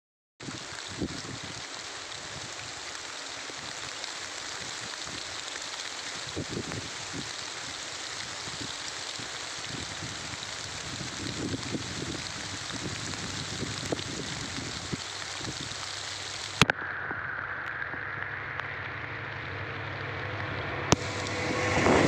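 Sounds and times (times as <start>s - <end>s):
drizzle hissing: 20.9s - 22.0s.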